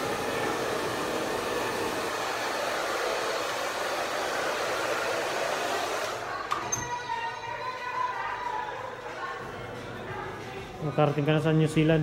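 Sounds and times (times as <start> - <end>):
hair dryer running: 0.0 - 6.3.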